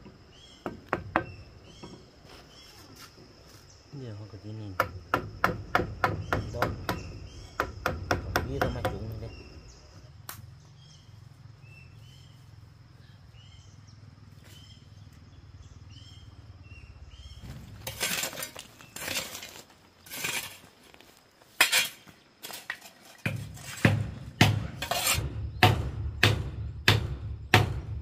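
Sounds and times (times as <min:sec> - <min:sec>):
hard objects clattering: 0:17.6 - 0:20.7.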